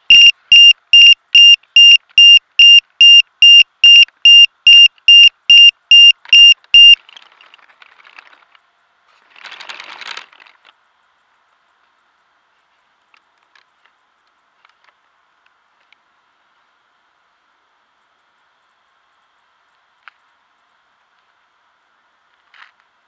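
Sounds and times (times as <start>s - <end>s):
high electronic beeping: 0.0s - 7.0s
brief rustle: 7.0s - 10.8s.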